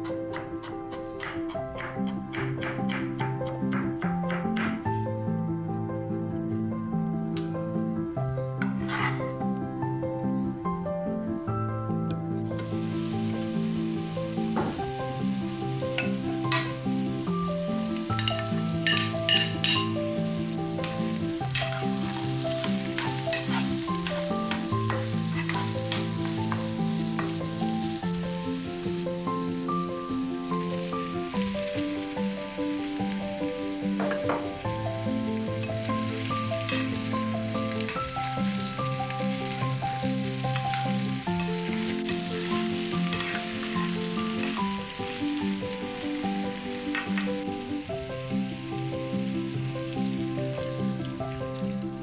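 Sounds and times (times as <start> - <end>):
background music: 0.0 - 52.0
spoon knocking and scraping pan: 1.2 - 4.8, 8.6 - 9.2, 16.0 - 16.8, 18.2 - 19.9, 20.8 - 27.4, 34.0 - 34.6, 36.6 - 37.1, 41.4 - 43.6
spatula scraping a pan: 8.7 - 9.3, 21.6 - 24.2, 25.2 - 26.1, 43.1 - 43.5
vegetables sizzling in a frying pan: 12.4 - 52.0.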